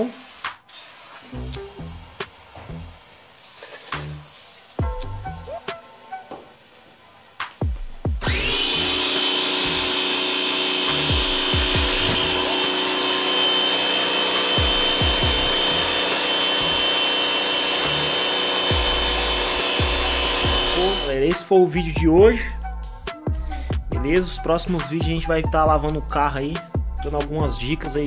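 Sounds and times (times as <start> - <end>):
water jet spraying onto tiles: 0.0 - 21.6
pressure washer motor whining: 8.1 - 21.3.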